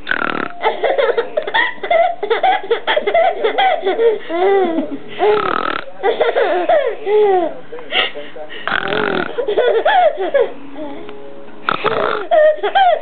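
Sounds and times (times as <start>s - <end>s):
baby girl laughing: 0.6s - 5.4s, 6.0s - 7.6s, 9.1s - 11.0s, 11.8s - 13.0s
woman laughing and talking: 0.8s - 5.1s.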